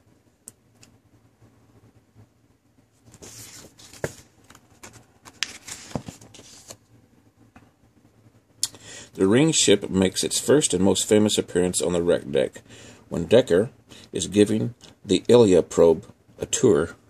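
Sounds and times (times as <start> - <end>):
magazine pages rustling: 3.0 - 6.8.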